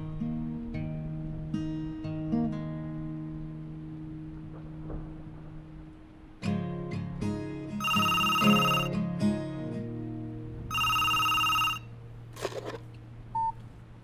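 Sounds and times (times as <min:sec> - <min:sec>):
cordless phone ringing: 0:07.8 - 0:08.9, 0:10.7 - 0:11.9.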